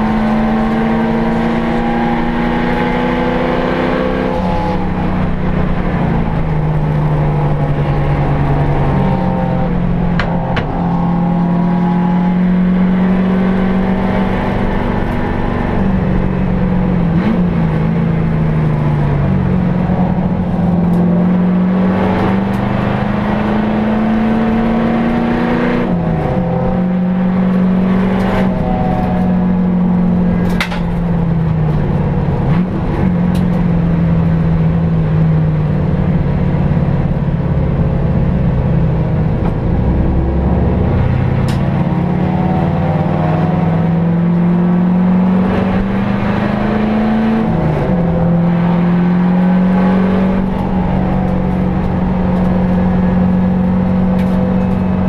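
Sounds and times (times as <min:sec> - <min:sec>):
car engine moving through gears: 0:00.0 - 0:55.0
road and wind noise: 0:00.0 - 0:55.0.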